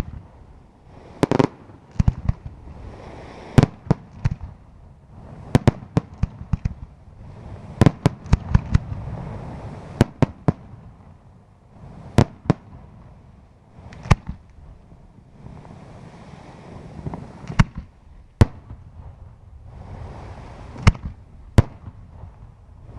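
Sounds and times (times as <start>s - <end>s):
continuous low rumble: 0.0s - 22.9s
firework shells bursting: 1.1s - 2.6s, 7.7s - 9.0s, 13.8s - 14.6s, 17.0s - 18.8s, 20.7s - 22.3s.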